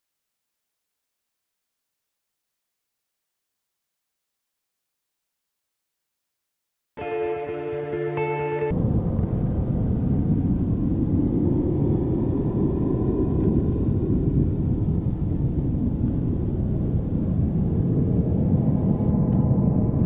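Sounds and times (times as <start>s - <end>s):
low rumbling outdoor noise: 8.7s - 20.0s.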